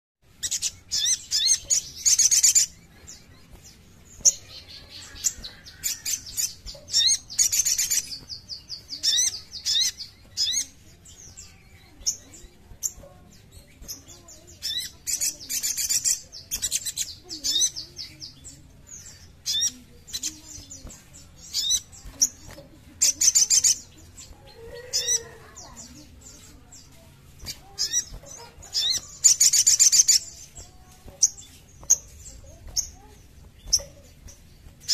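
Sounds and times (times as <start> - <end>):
bird chirping and trilling: 0.2 - 34.9.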